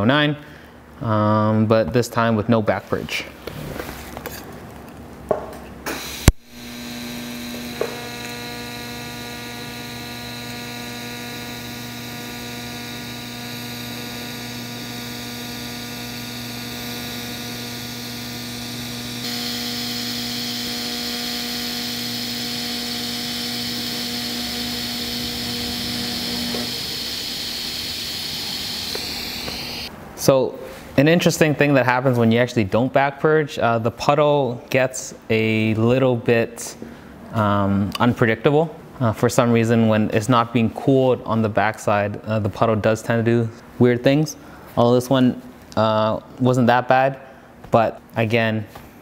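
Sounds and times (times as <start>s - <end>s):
welding arc humming and hissing: 5.8s - 29.9s
welding arc striking crack: 5.9s - 29.9s.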